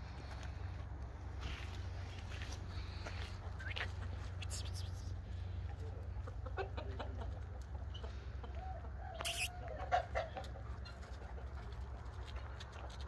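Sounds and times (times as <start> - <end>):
hen clucking: 3.5 - 12.0.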